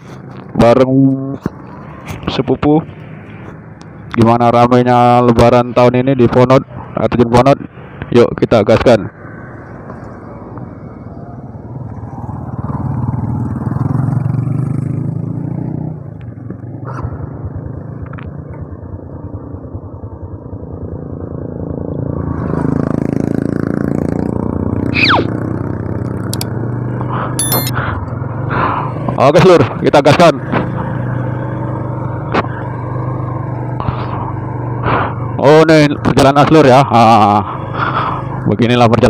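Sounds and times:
motorcycle engine riding: 0:12.2 - 0:38.5
short falling whistle: 0:25.0 - 0:25.3.

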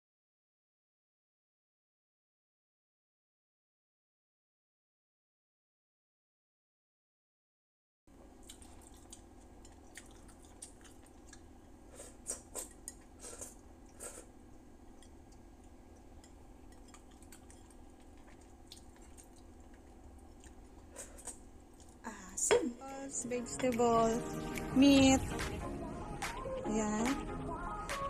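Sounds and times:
steady low hum: 0:08.1 - 0:28.0
lip smacks and mouth clicks: 0:08.4 - 0:11.5, 0:16.9 - 0:22.0
person licking a plate: 0:08.4 - 0:14.3.

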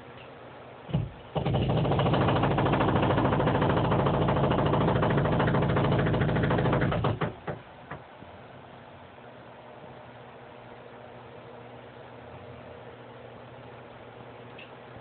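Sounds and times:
jackhammer pounding: 0:00.9 - 0:07.6.

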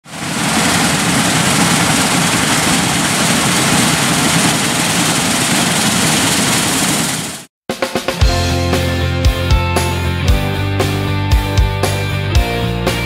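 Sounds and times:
combine harvester running: 0:00.0 - 0:07.5.

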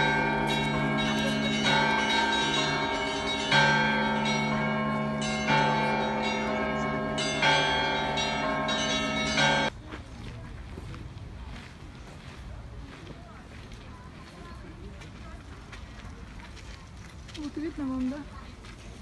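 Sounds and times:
church bells ringing: 0:00.0 - 0:09.7.

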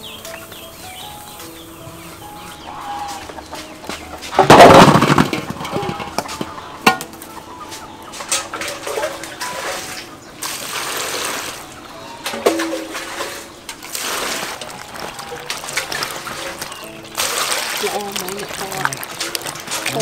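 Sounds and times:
fruit clattering into metal basin: 0:03.1 - 0:20.0
metal pot scooping water: 0:04.2 - 0:07.2, 0:08.1 - 0:20.0.

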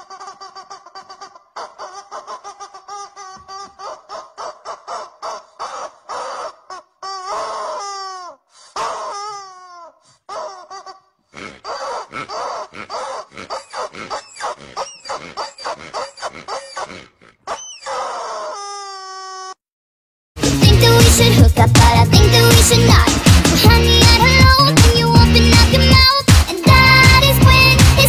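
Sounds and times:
pig-like grunts and squeals: 0:03.6 - 0:19.6.

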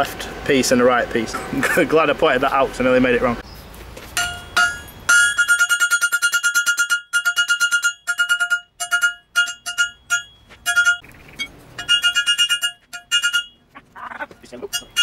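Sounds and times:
hammer striking metal on anvil: 0:04.2 - 0:11.0, 0:11.8 - 0:13.6, 0:14.7 - 0:15.0.

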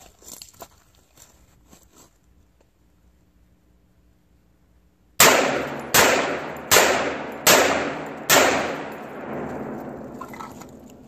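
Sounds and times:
bullets hitting steel drums: 0:05.2 - 0:11.0
rifle shots: 0:05.2 - 0:11.0.

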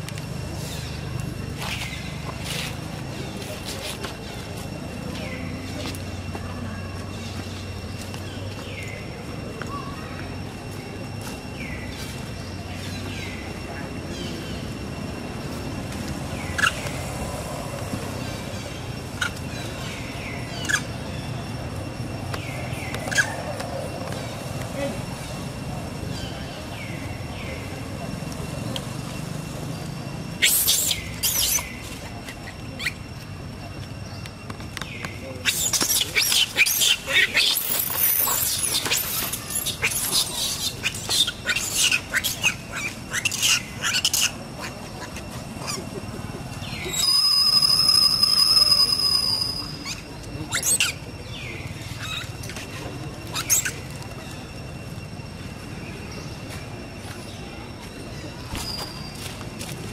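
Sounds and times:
macaques squeaking: 0:16.4 - 0:17.4, 0:18.1 - 0:25.5, 0:28.5 - 0:33.2, 0:34.8 - 0:54.9
monkeys screaming: 0:16.4 - 0:21.3, 0:22.7 - 0:25.3, 0:29.7 - 0:33.2, 0:35.4 - 0:54.0
macaque high squeal: 0:19.0 - 0:21.5, 0:22.7 - 0:23.6, 0:30.3 - 0:33.2, 0:35.4 - 0:46.0, 0:46.6 - 0:54.2, 0:58.4 - 0:59.3.

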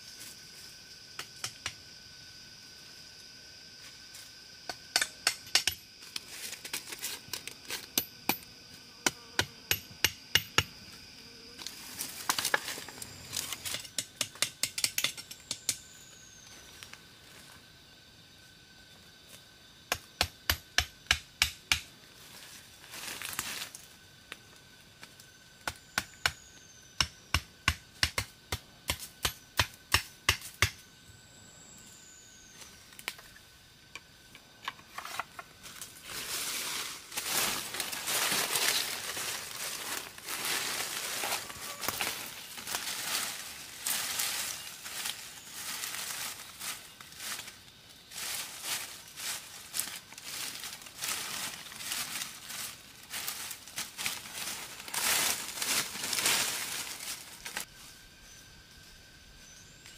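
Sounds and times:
hand tool striking sharp knocks: 0:04.7 - 0:05.8, 0:07.9 - 0:10.7, 0:13.7 - 0:15.8, 0:19.9 - 0:21.8, 0:27.0 - 0:30.8.

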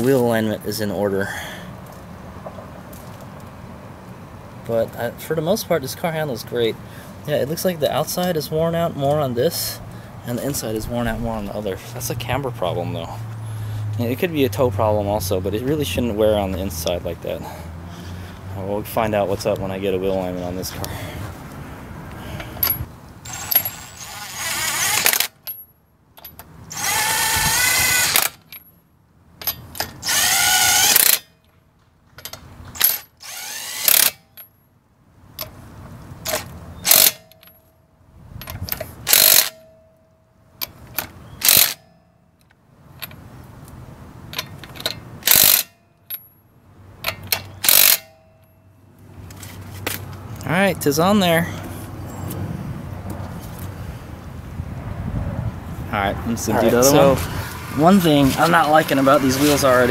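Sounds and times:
impact driver bursts: 0:26.7 - 0:28.4, 0:29.9 - 0:31.2, 0:32.8 - 0:34.2, 0:36.8 - 0:37.2, 0:39.1 - 0:39.6, 0:41.4 - 0:41.8, 0:45.2 - 0:45.7, 0:47.5 - 0:48.2
small metallic clicks: 0:38.4 - 0:46.4, 0:47.0 - 0:48.6.

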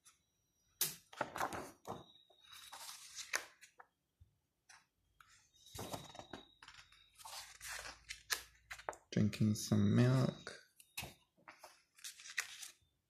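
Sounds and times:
book pages turning: 0:01.1 - 0:04.0, 0:05.8 - 0:09.0, 0:11.0 - 0:12.8.

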